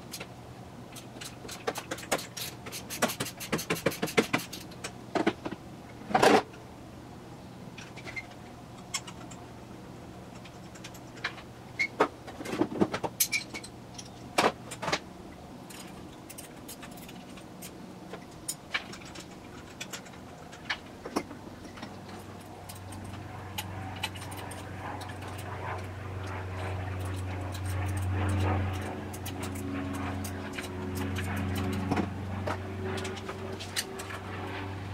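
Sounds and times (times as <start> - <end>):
low engine hum: 21.3 - 34.9.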